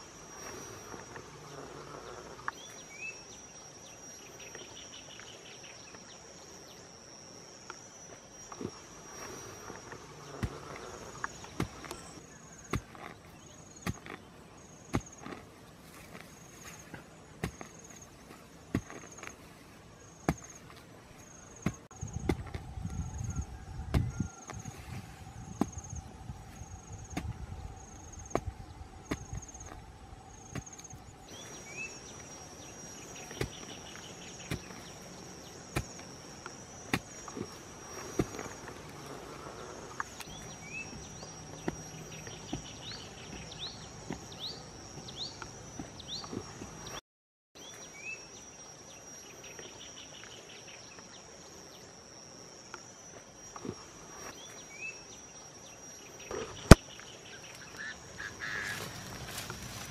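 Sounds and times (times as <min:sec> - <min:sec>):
high-pitched insect drone: 0:00.0 - 0:12.3
wooden stick digging into soil: 0:08.5 - 0:27.5, 0:28.1 - 0:47.0.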